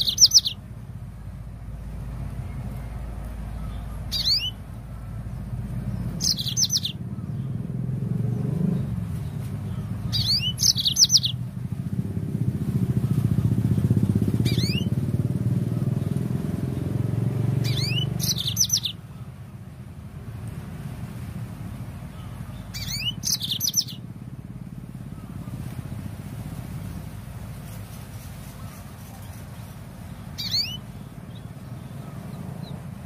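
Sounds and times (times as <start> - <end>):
canary chirping: 0.0 - 0.8, 1.6 - 11.4, 12.7 - 15.6, 16.6 - 19.2, 22.1 - 24.1, 28.4 - 33.0
low engine-like drone: 0.0 - 33.0.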